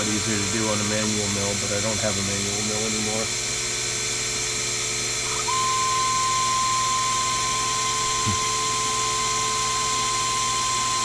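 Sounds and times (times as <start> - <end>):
mill spindle motor noise: 0.0 - 11.0
stepper motor whine: 4.9 - 11.0.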